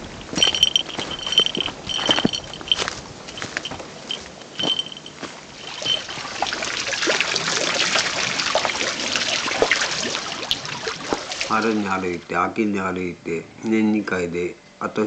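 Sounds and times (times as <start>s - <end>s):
rustling footsteps: 0.0s - 6.6s
water splashing off waterwheels: 5.5s - 12.3s.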